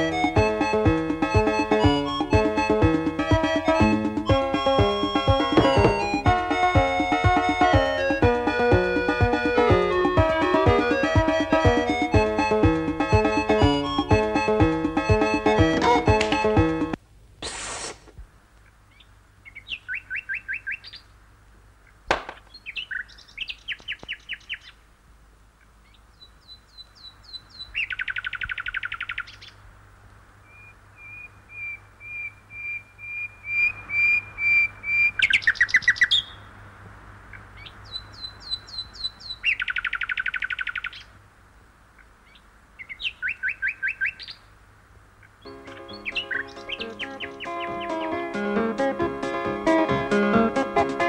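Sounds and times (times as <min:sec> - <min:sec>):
recorded birdsong chirping trills: 0:00.0 - 0:17.0, 0:18.6 - 0:49.8.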